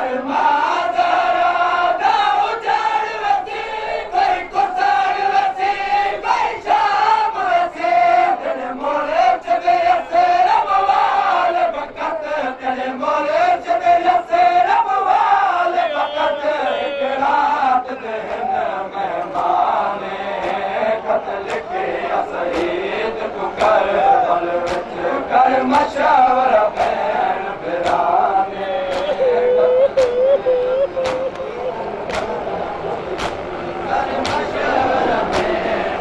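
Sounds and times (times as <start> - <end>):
men chanting together: 0.0 - 36.0
chest-beating slaps: 20.4 - 20.7, 22.5 - 22.8, 24.6 - 25.0, 26.8 - 27.1, 27.8 - 28.1, 28.9 - 31.5, 32.1 - 32.4, 33.2 - 33.5, 35.3 - 35.6.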